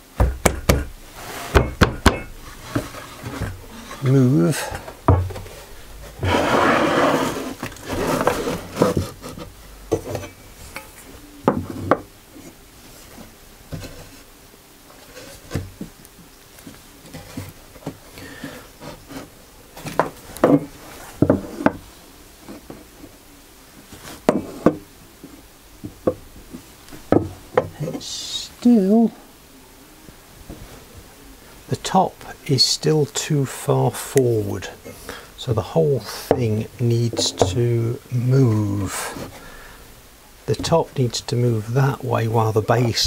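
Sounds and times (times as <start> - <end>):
wooden knocks and taps: 0.2 - 0.9, 1.5 - 3.6, 5.0 - 5.5, 27.1 - 27.8
wood sliding and scraping: 0.6 - 10.9, 16.6 - 23.1, 34.1 - 39.6.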